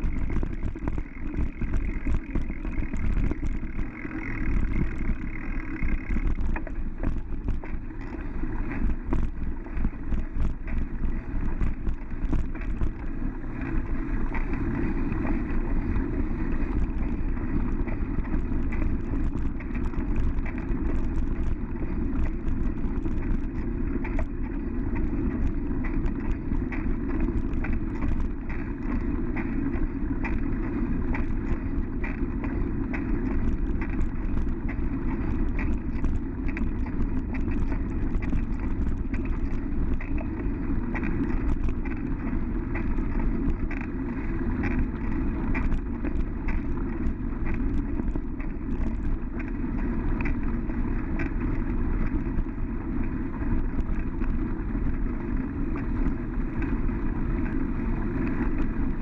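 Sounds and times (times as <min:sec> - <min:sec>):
bicycle tyres rolling on dirt: 0:00.0 - 0:59.0
bike rattles and clicks: 0:00.0 - 0:59.0.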